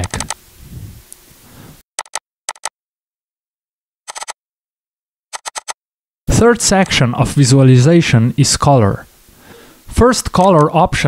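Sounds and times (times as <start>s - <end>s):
keyboard and mouse clicks: 0.0s - 0.4s, 2.0s - 2.7s, 4.1s - 4.4s, 5.4s - 5.8s.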